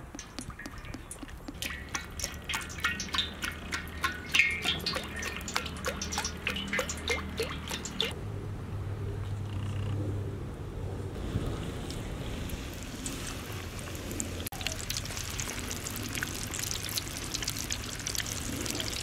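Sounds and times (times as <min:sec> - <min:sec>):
oil pouring into a wok: 0:00.0 - 0:08.1, 0:12.3 - 0:19.0.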